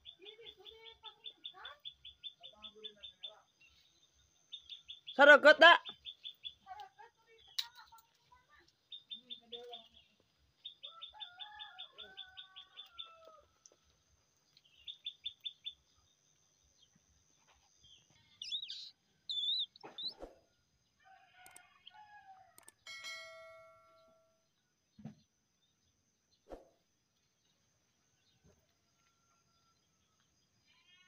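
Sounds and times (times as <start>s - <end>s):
small bird trilling: 18.4s - 20.4s
low sliding bird calls: 18.6s - 20.4s.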